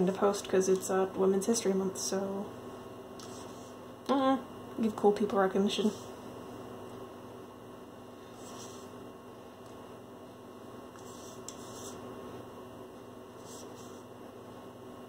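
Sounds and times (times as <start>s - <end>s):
faint electrical mains hum: 0.0s - 15.0s.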